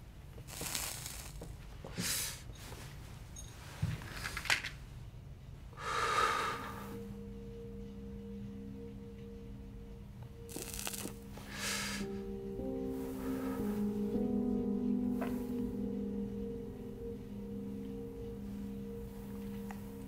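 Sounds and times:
person smoking and exhaling: 0:00.5 - 0:02.4, 0:05.8 - 0:07.0, 0:10.5 - 0:12.1
low droning film music: 0:05.1 - 0:20.0.

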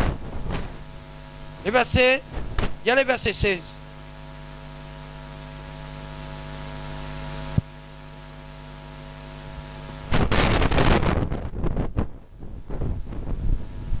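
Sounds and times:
microphone handling crackling: 0:00.0 - 0:03.6, 0:09.9 - 0:14.0
electrical mains hum: 0:00.0 - 0:14.0
microphone hiss: 0:00.0 - 0:14.0.

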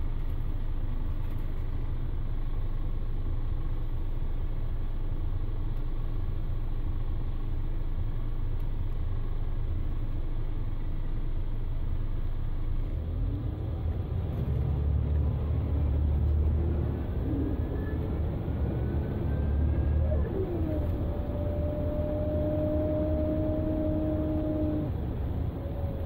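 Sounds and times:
diesel engine drone: 0:00.0 - 0:26.0
gearbox whine: 0:13.6 - 0:26.0.

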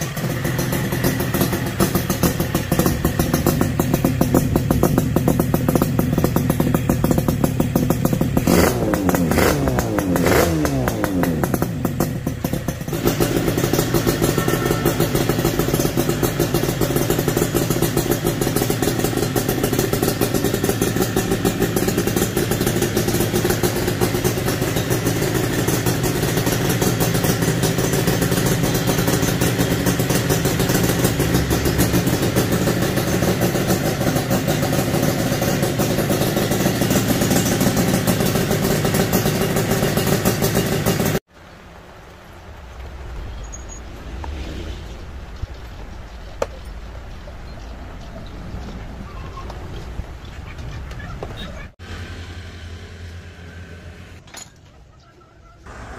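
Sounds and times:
two-stroke motorcycle engine running: 0:00.0 - 0:41.3.

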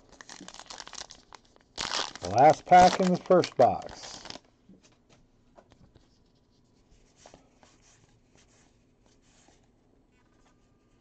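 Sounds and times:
cards rustling and clicking: 0:02.1 - 0:05.1.

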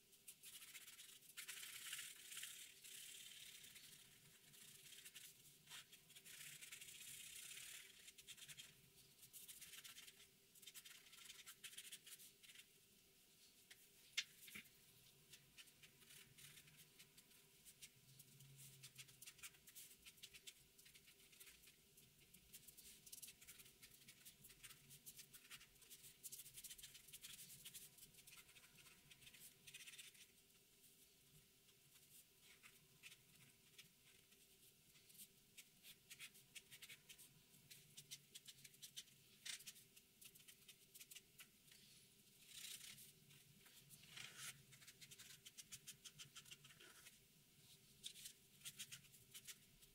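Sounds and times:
marker scratching on paper: 0:00.4 - 0:12.7, 0:42.5 - 0:47.2, 0:48.0 - 0:49.9.

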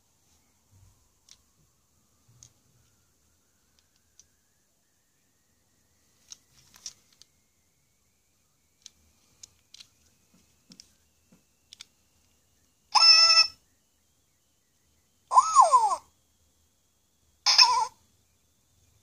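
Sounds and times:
electronic toy chirp: 0:07.9 - 0:16.2, 0:17.4 - 0:19.0.

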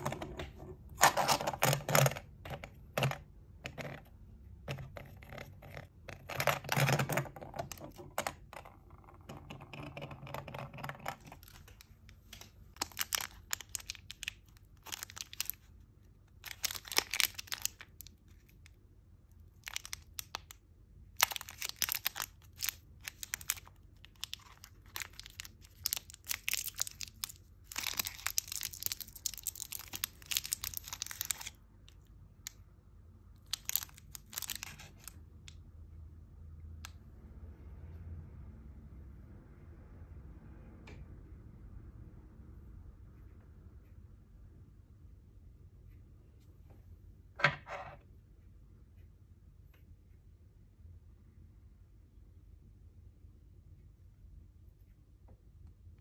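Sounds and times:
plastic wrapper crinkling: 0:11.0 - 0:18.8, 0:19.4 - 0:20.6, 0:21.2 - 0:31.6, 0:33.4 - 0:35.2.

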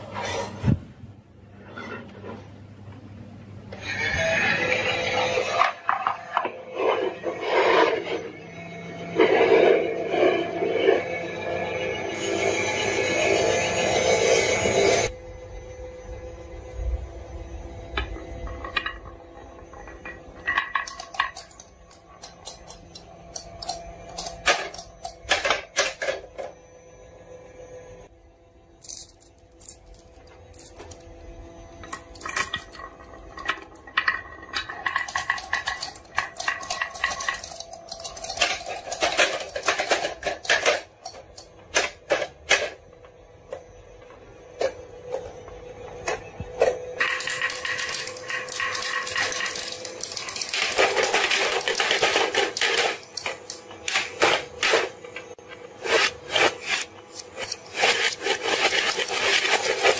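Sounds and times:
glass marbles clicking on wooden track: 0:33.4 - 0:41.4.

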